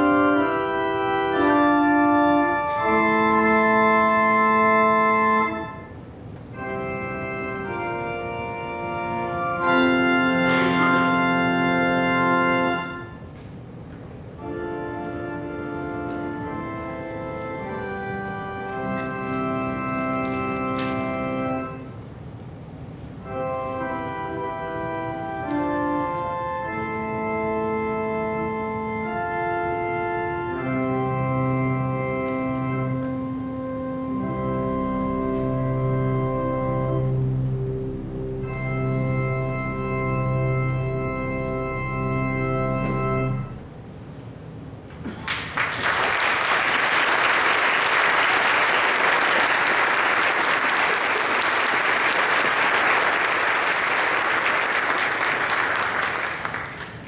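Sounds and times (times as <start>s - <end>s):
pipe organ sustained chords: 0.0s - 13.4s, 14.2s - 44.0s, 45.9s - 57.0s.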